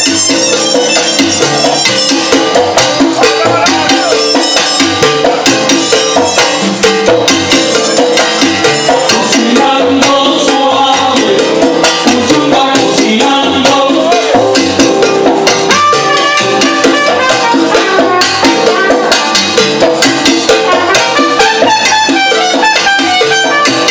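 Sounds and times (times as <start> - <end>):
trumpet section: 0.0 - 6.6, 15.7 - 19.6, 20.5 - 23.9
bass: 0.0 - 23.9
congas: 0.0 - 23.9
maracas: 0.0 - 23.9.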